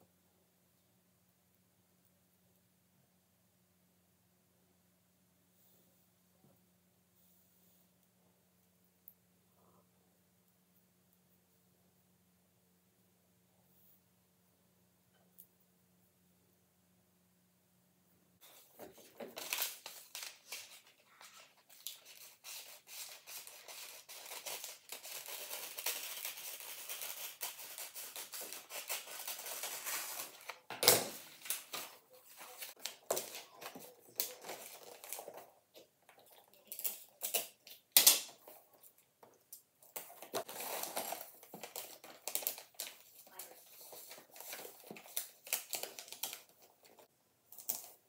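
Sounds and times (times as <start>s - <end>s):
wrapping paper rustling: 18.4s - 39.0s, 39.8s - 48.0s.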